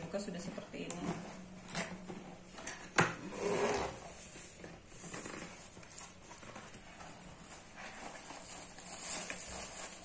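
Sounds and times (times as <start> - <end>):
cardboard rustle: 4.2 - 10.0.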